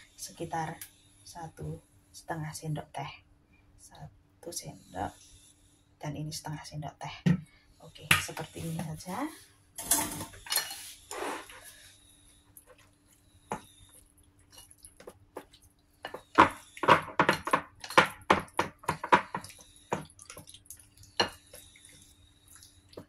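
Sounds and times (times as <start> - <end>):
wet squelches of chicken mixed: 13.8 - 16.0, 19.4 - 23.0.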